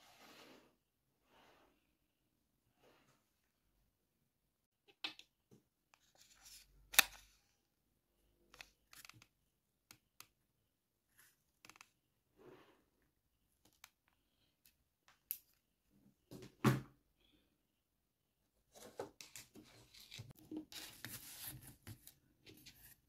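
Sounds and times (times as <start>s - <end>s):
wires rustling on cardboard: 18.7s - 23.0s.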